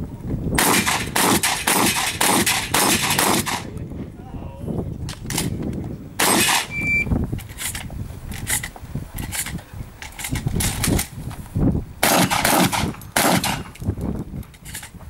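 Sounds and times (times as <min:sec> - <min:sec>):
shotgun shots with echo: 0:00.6 - 0:03.7, 0:06.2 - 0:06.7, 0:12.0 - 0:13.8.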